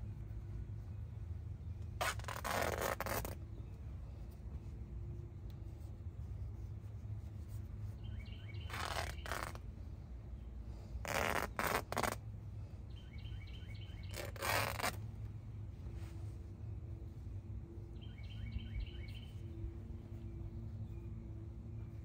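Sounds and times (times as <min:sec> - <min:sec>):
cloth rubbing on plastic: 0:02.0 - 0:08.0, 0:08.6 - 0:09.8, 0:11.0 - 0:12.5, 0:13.9 - 0:16.6
small bird chirping: 0:07.8 - 0:09.6, 0:12.9 - 0:15.0, 0:17.9 - 0:21.2.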